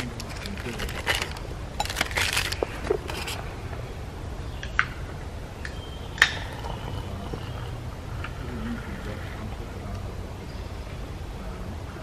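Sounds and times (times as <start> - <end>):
drink sachet crinkling: 0.0 - 3.4.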